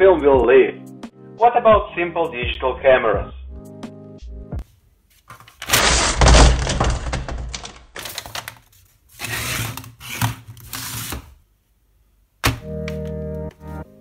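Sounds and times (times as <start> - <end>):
keyboard music: 0.0 - 4.6, 12.5 - 14.0
objects sliding and rustling: 8.7 - 11.4.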